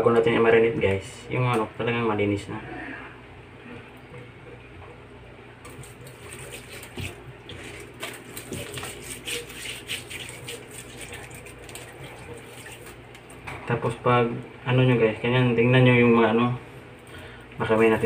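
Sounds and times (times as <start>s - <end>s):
steady low hum: 0.0s - 18.0s
water splashing in a sink: 5.7s - 13.4s
wet handling of raw chicken: 5.7s - 13.4s.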